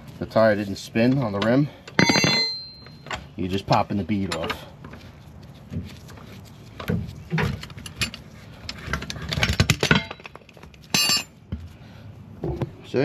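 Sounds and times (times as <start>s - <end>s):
metallic ringing clink: 1.9s - 3.1s, 10.9s - 11.4s.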